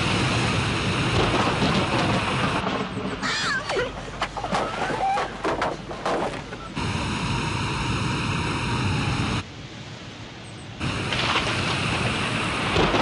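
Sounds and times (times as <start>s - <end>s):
rain: 0.0s - 3.4s, 8.6s - 13.0s
wind: 0.0s - 13.0s.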